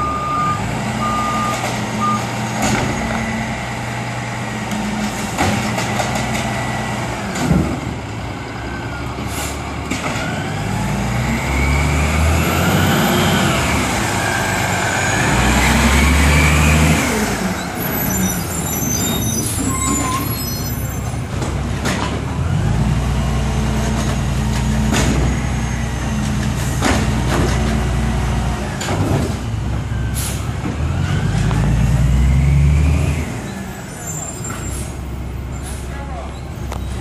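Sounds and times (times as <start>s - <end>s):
garbage truck diesel engine: 0.0s - 37.0s.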